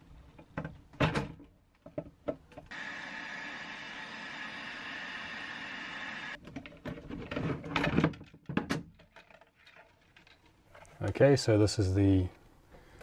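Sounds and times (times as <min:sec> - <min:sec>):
heat gun blowing with whine: 0:02.7 - 0:06.4.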